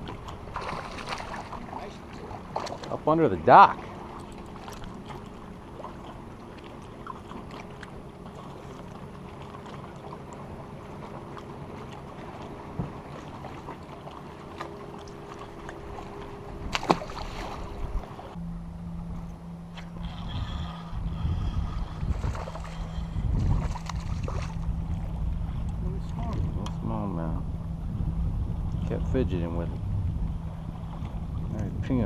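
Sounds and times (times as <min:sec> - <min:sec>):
light water noise: 0:00.0 - 0:32.0
electric motor hum: 0:14.2 - 0:26.0.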